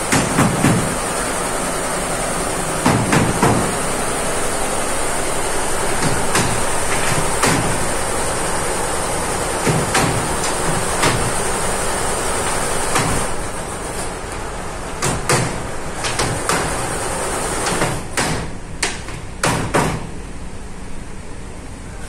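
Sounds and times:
embroidery machinery hissing: 0:00.0 - 0:15.0.

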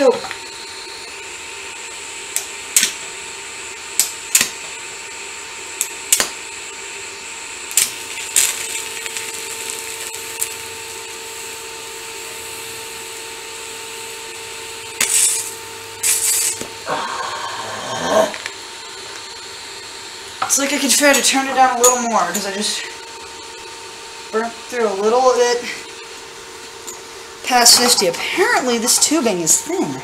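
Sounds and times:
welding arc hum and hiss: 0:00.0 - 0:30.0
welding arc sharp cracks: 0:02.2 - 0:04.9, 0:05.8 - 0:06.6, 0:07.6 - 0:16.8.

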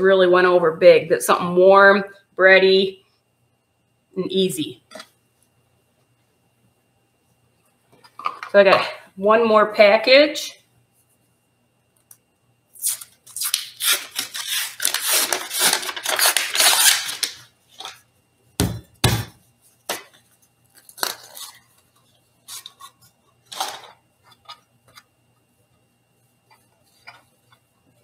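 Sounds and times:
paper wrapper crinkling and tearing: 0:12.8 - 0:18.0, 0:20.7 - 0:21.8
cardboard tube bursting thumps: 0:18.6 - 0:19.4.

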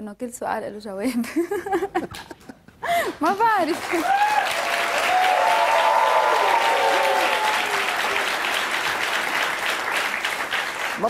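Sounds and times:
person laughing: 0:01.2 - 0:03.1
studio audience applauding: 0:03.0 - 0:11.0.

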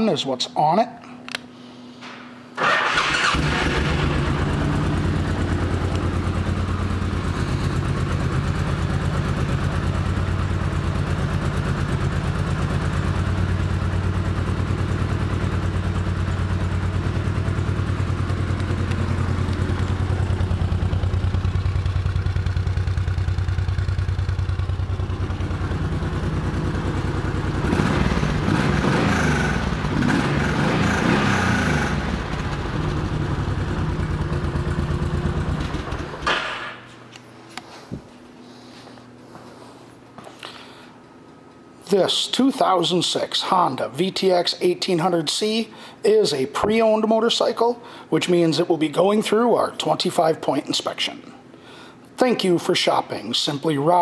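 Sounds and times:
motorcycle engine idling and revving: 0:02.9 - 0:36.4.

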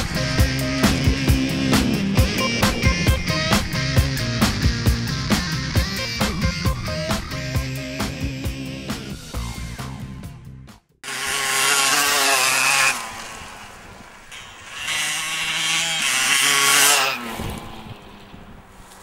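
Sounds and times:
dirt bike engine revving: 0:00.0 - 0:10.4, 0:11.0 - 0:18.7
music playing: 0:00.0 - 0:10.8.

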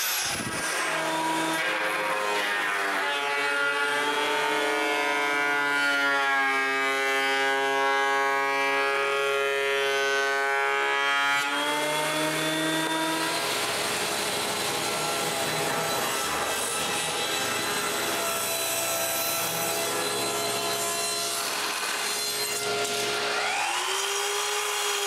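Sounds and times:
jointer cutting a board: 0:00.0 - 0:25.0
rough noisy machine: 0:06.5 - 0:25.0.

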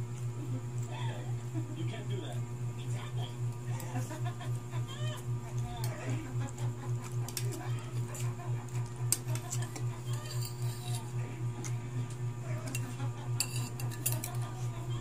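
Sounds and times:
pulsing low hum: 0:00.0 - 0:15.0
cutlery clinking on plate: 0:12.6 - 0:14.4.

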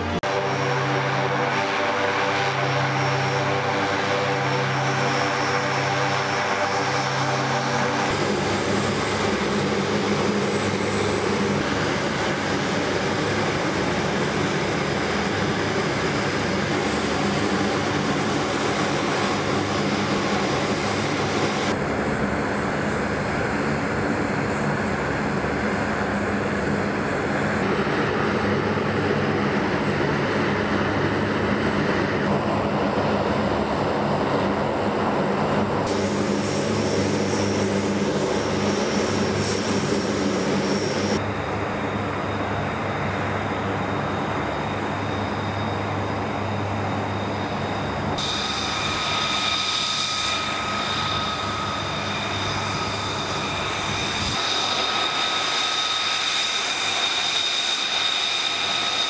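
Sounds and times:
turboprop engines idling: 0:00.0 - 0:59.0.

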